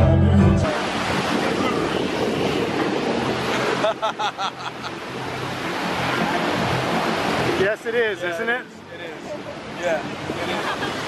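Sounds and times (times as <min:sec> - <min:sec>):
surf breaking on beach: 0:00.6 - 0:08.5.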